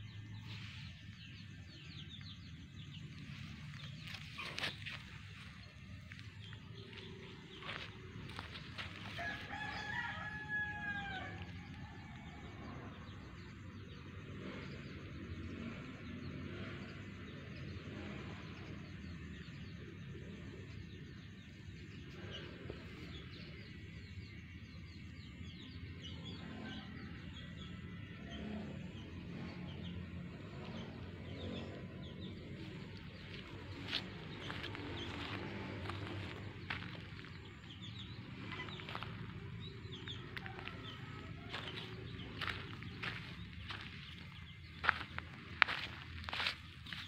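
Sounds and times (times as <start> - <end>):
rooster crowing: 9.0 - 12.6, 40.1 - 43.9.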